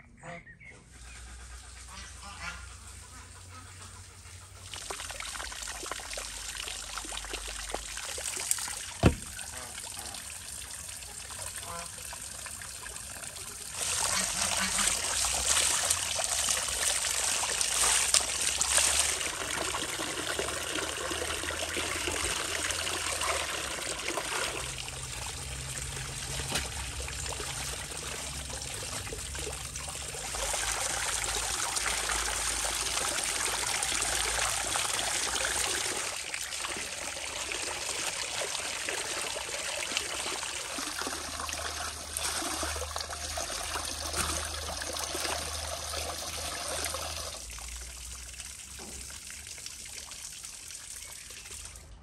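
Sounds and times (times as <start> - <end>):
water pouring into basin: 4.6 - 52.0
hands washing in water: 25.4 - 29.5.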